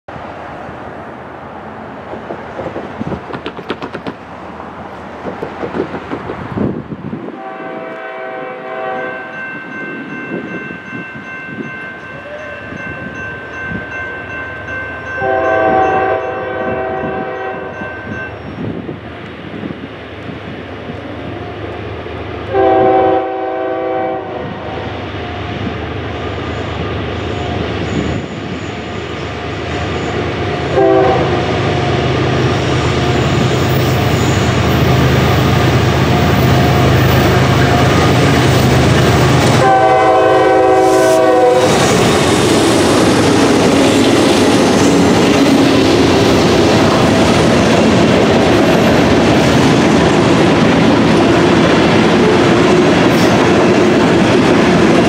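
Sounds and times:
low train rumble: 0.1 - 55.0
locomotive air horn blasts: 7.3 - 9.4, 15.2 - 17.8, 22.5 - 24.8, 30.7 - 31.6, 39.5 - 41.8.

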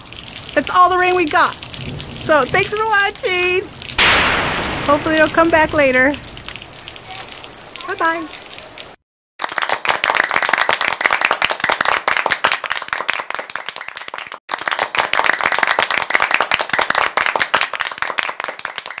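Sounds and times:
crowd clapping: 4.8 - 19.0.

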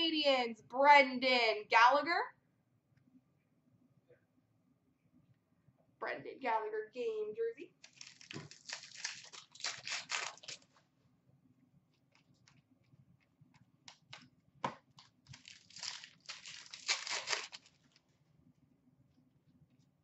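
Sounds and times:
foil wrappers crinkling and tearing: 7.8 - 10.8, 15.2 - 18.0.

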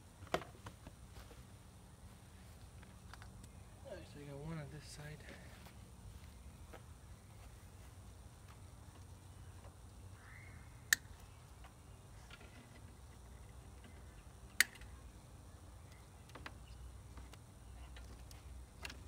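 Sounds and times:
sharp clicks: 10.9 - 11.8, 13.8 - 14.9.

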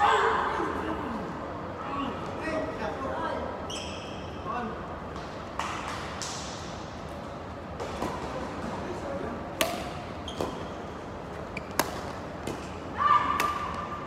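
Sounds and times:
rackets hitting shuttlecock: 9.5 - 10.7, 11.6 - 13.9.

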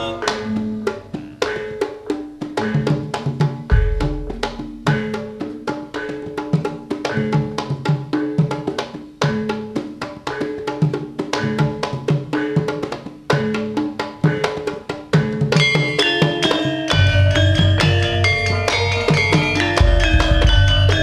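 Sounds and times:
gamelan dance music: 0.0 - 21.0
deep low boom: 3.7 - 4.5.

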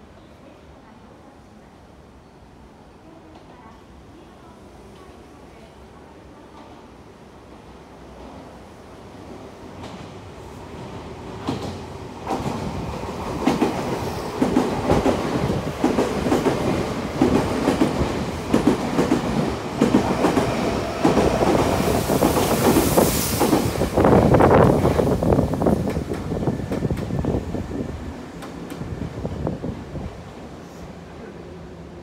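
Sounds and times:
electric train passing: 10.5 - 29.6.

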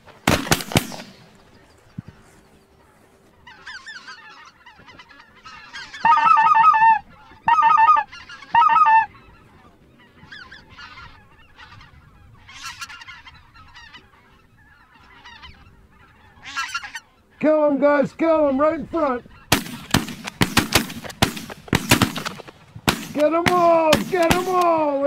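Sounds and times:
geese honking: 0.2 - 25.0
loud long goose honks: 2.8 - 17.4.

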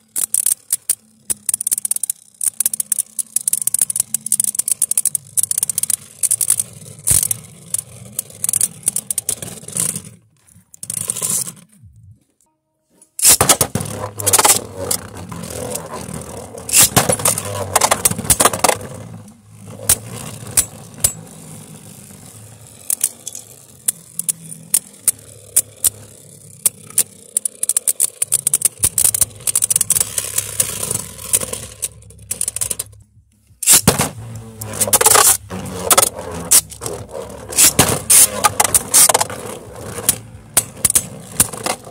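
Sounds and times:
spinning tops whirring: 0.0 - 11.7, 13.2 - 41.9
spinning tops clashing: 13.2 - 19.0.

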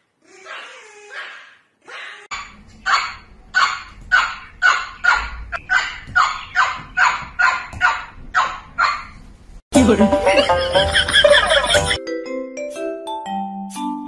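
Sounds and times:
small dog barking: 0.4 - 3.8.

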